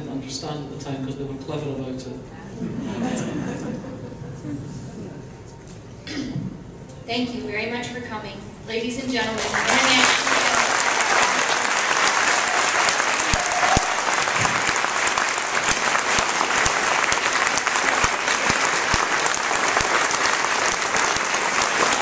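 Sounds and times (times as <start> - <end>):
audience applauding: 9.4 - 22.0.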